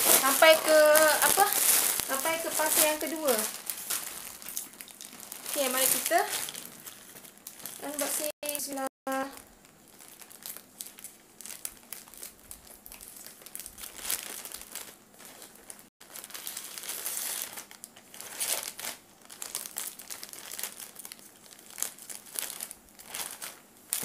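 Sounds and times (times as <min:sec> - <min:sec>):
plastic bag crinkling: 0:00.0 - 0:24.0.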